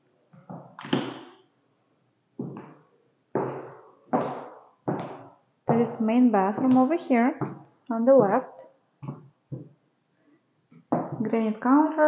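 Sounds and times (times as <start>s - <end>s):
footsteps on hardwood floor: 2.4s - 8.4s, 9.0s - 9.8s, 10.9s - 11.3s.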